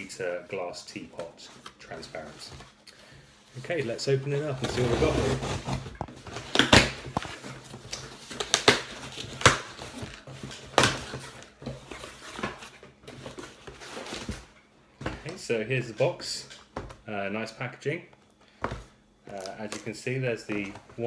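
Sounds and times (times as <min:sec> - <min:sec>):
packing tape ripping off cardboard: 0:04.6 - 0:11.2.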